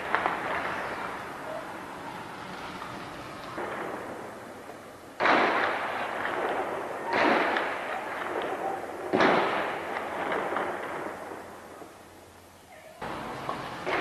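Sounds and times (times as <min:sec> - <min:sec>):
heavy gunshots with rolling echo: 0:03.6 - 0:04.6, 0:05.2 - 0:11.8.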